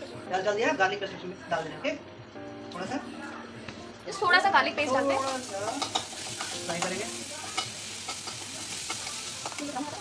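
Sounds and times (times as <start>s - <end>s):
onions sizzling in oil: 4.4s - 10.0s
metal spatula scraping wok: 5.0s - 10.0s.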